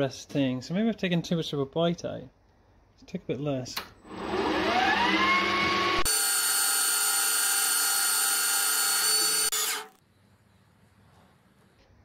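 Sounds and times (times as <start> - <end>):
lathe motor whine: 4.0 - 9.9.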